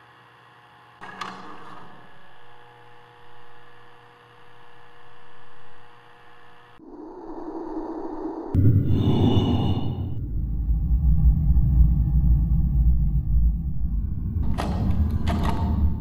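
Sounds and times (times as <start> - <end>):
uneven noise: 6.8 - 16.0.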